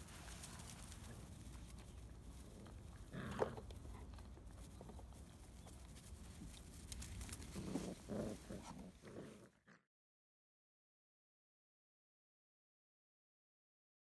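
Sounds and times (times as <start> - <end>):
rustling of dry grass: 0.0 - 9.5.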